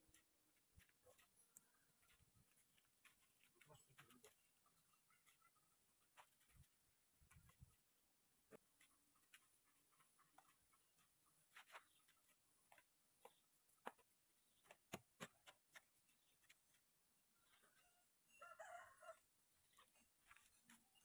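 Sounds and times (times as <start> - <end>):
rooster crowing: 17.6 - 19.2.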